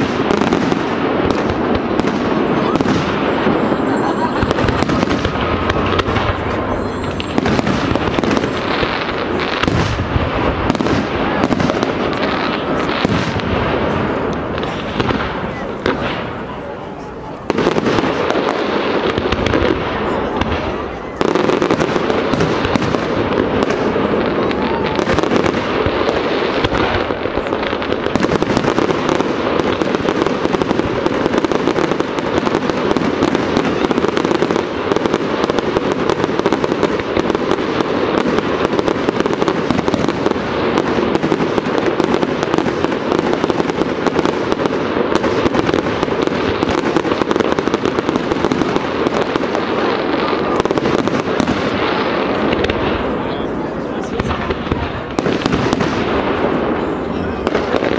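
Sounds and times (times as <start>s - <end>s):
fireworks bangs and crackles: 0.0s - 57.9s.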